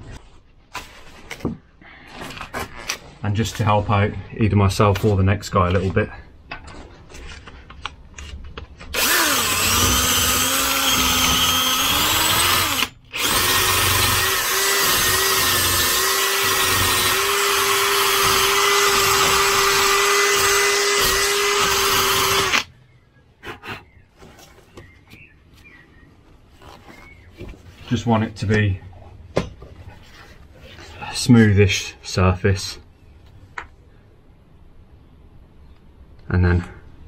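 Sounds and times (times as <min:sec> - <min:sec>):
drill spinning wire brush on metal: 0:08.9 - 0:22.7.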